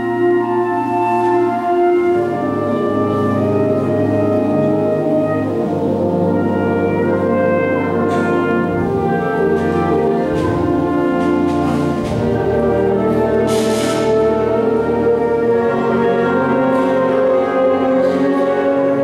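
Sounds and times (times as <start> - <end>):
concert band brass chords: 0.0 - 19.0
cymbal crash: 13.5 - 14.2.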